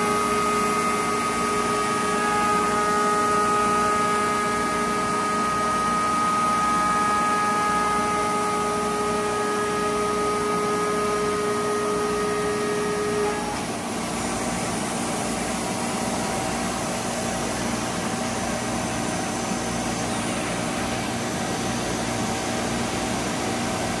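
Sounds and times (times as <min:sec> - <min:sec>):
faint machine tone: 0:00.0 - 0:13.8
router spindle whining: 0:00.0 - 0:13.8.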